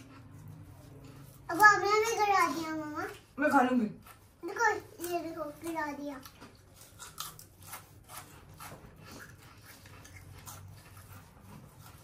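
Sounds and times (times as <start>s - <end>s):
chewing crunchy noodles: 4.0s - 12.0s.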